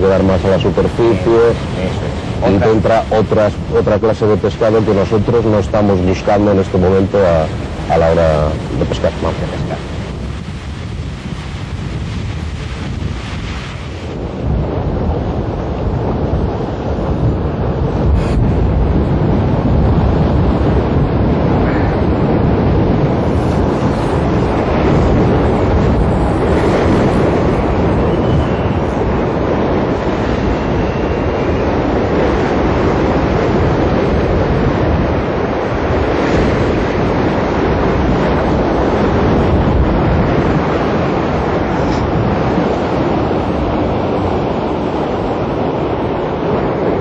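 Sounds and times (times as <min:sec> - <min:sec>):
heavy surf breaking on rocks: 0:00.0 - 0:47.0
wind buffeting microphone: 0:00.0 - 0:47.0.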